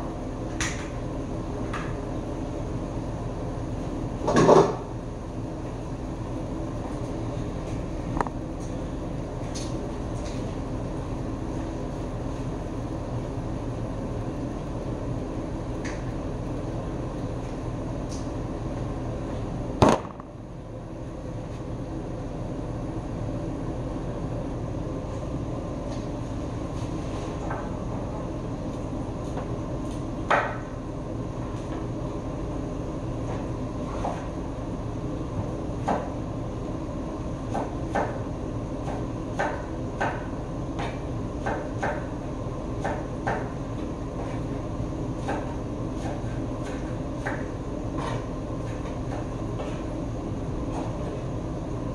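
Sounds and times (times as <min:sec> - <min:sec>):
steady low rumble: 0:16.4 - 0:26.5
knife chopping on wooden board: 0:38.8 - 0:42.1, 0:45.2 - 0:49.8.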